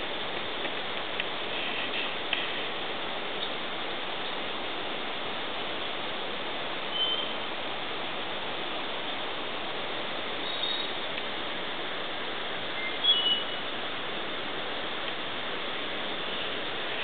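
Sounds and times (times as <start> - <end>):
flowing river water: 0.0 - 17.0
high bird chirps: 6.9 - 7.3, 10.4 - 10.9, 12.8 - 13.6.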